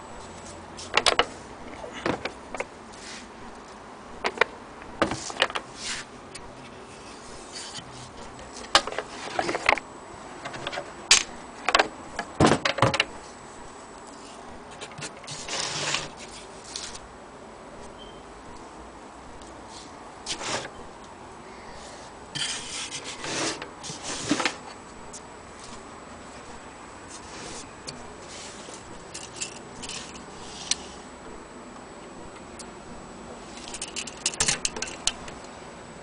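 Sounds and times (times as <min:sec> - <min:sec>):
short scrape: 0:05.8 - 0:06.1, 0:21.9 - 0:24.5.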